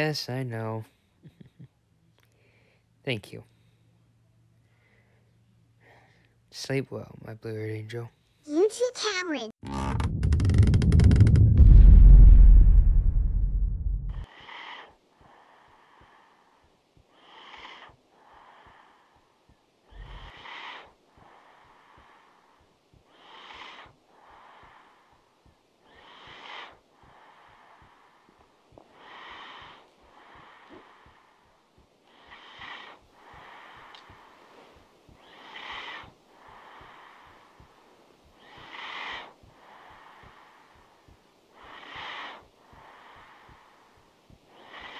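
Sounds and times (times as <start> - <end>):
person breathing heavily: 14.1 - 44.9.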